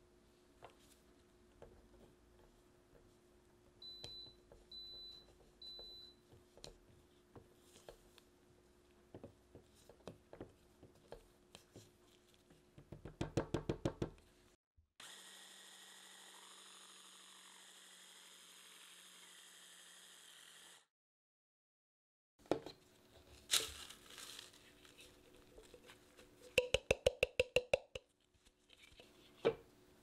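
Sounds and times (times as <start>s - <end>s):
spatula knocking on bowl: 26.6s - 28.1s.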